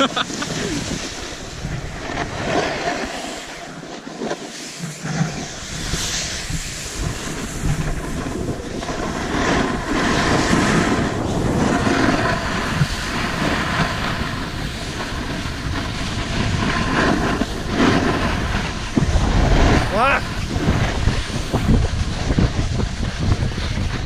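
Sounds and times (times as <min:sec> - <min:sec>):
wind buffeting microphone: 0:00.0 - 0:03.8, 0:05.0 - 0:24.0
skis scraping on snow: 0:00.0 - 0:24.0.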